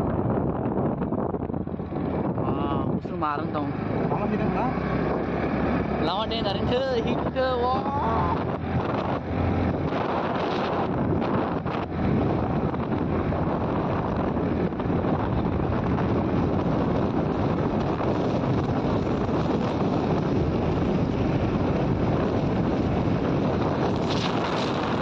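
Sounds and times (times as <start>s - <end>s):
motorcycle engine: 0.0s - 25.0s
road noise: 0.0s - 25.0s
wind rushing over microphone: 0.0s - 25.0s.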